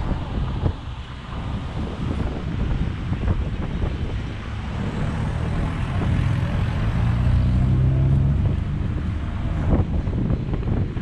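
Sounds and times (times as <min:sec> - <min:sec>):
wind buffeting microphone: 0:00.0 - 0:11.0
vehicle engine passing by: 0:03.3 - 0:10.8.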